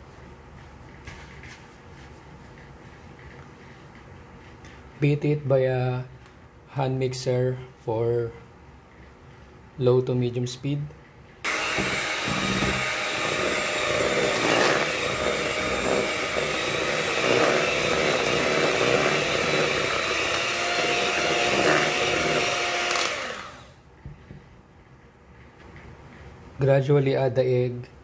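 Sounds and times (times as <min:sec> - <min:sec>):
electric hand mixer running: 0:11.4 - 0:23.8.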